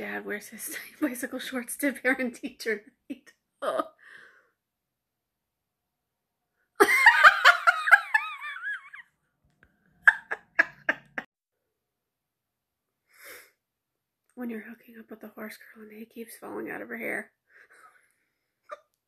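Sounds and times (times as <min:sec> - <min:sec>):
woman laughing: 0:03.6 - 0:03.9, 0:06.8 - 0:09.0, 0:10.0 - 0:11.3.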